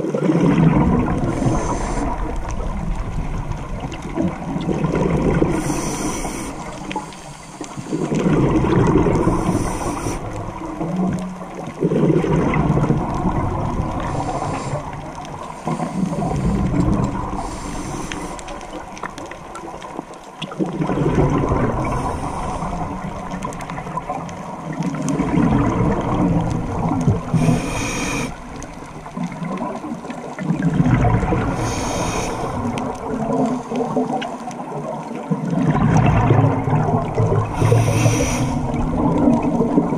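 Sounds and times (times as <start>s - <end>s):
exhaled bubbles rumbling: 0.0s - 39.9s
regulator inhale hiss: 1.3s - 2.4s, 5.5s - 8.2s, 9.3s - 10.4s, 14.0s - 18.8s, 21.8s - 22.9s, 27.3s - 28.6s, 31.5s - 32.7s, 37.6s - 38.8s.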